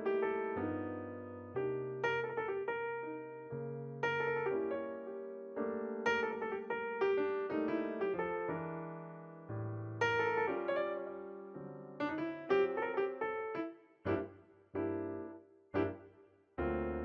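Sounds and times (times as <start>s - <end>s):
solo piano: 0.0s - 17.0s.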